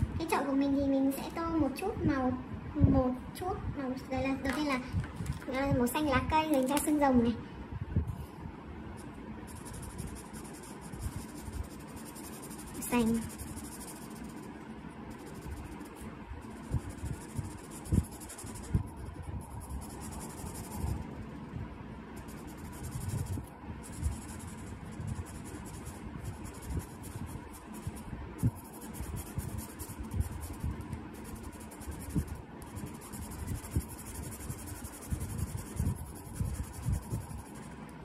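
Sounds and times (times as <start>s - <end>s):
marker rubbing on paper: 9.5s - 21.1s, 22.2s - 37.8s.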